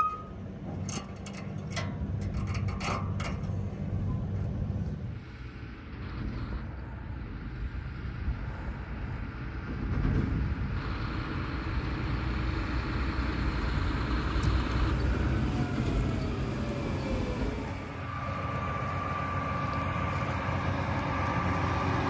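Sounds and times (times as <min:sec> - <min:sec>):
falling engine whine: 0:00.0 - 0:22.0
tractor diesel engine running: 0:00.0 - 0:22.0.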